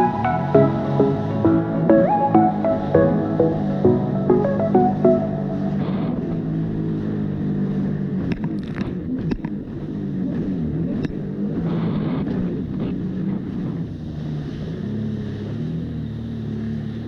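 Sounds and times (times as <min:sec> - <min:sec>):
jet ski engine running: 0:04.9 - 0:17.0.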